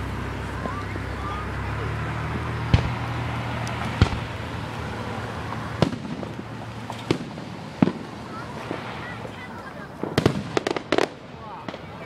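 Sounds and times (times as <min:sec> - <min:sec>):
firework shells booming: 0:02.4 - 0:12.0.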